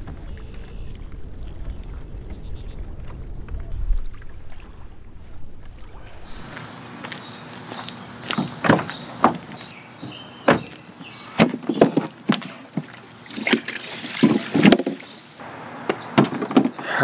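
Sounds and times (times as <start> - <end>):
plastic cooler knocks and clunks: 8.6 - 10.8, 11.4 - 12.9, 14.2 - 15.0.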